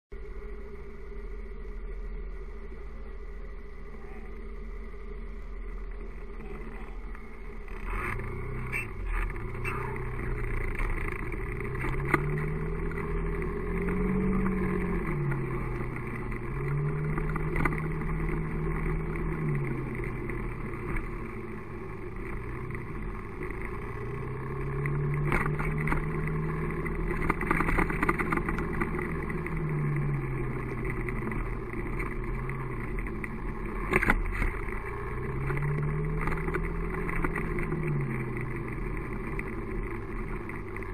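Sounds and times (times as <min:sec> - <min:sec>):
steady low rumble: 0:00.1 - 0:40.9
vehicle engine accelerating: 0:00.2 - 0:40.9.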